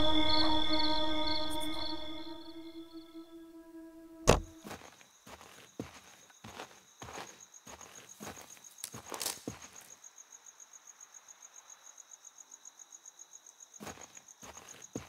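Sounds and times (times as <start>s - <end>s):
cricket chirping trill: 0.0s - 3.4s
footsteps: 4.2s - 9.8s.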